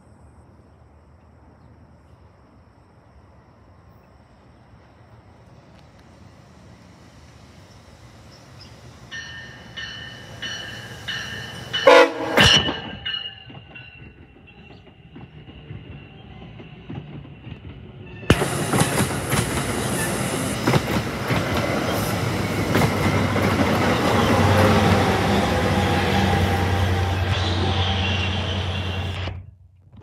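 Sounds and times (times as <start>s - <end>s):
diesel locomotive drone: 0.0s - 29.5s
train wheels clicking over rail joints: 7.6s - 29.1s.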